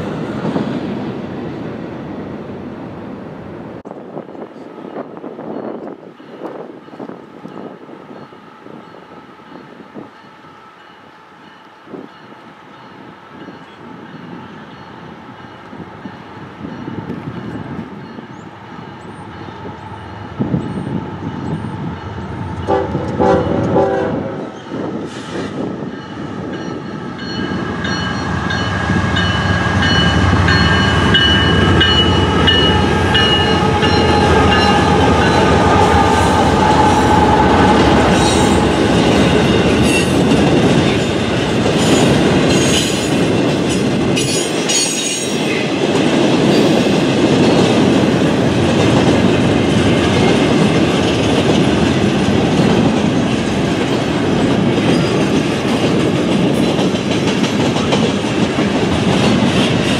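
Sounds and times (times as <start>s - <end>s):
train cars clickety-clack: 3.8s - 8.4s, 10.8s - 59.9s
locomotive rumble: 16.8s - 44.6s
train horn blast: 22.6s - 24.6s, 31.9s - 40.1s.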